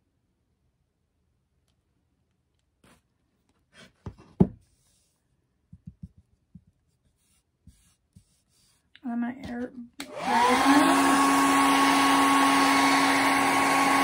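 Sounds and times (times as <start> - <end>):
soft taps on tabletop: 5.7 - 6.7.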